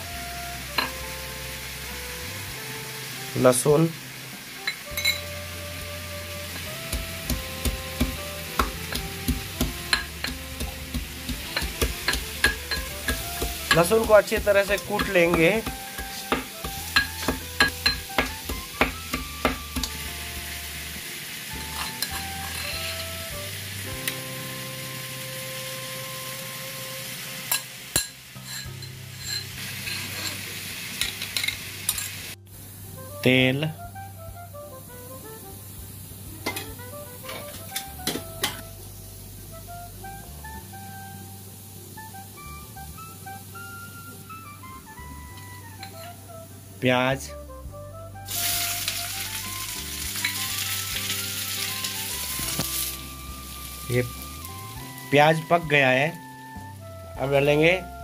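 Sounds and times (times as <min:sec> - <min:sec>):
steady hiss: 0:00.0 - 0:44.4, 0:48.3 - 0:56.8
spoon clinking on steel bowls: 0:04.6 - 0:05.3, 0:09.9 - 0:10.4, 0:11.6 - 0:13.9, 0:17.0 - 0:18.1, 0:21.8 - 0:23.1, 0:27.5 - 0:30.4, 0:31.0 - 0:32.2
pestle pounding in steel cup: 0:06.9 - 0:20.0
spoon scraping metal mortar: 0:09.9 - 0:18.1, 0:21.7 - 0:23.1, 0:27.5 - 0:30.4.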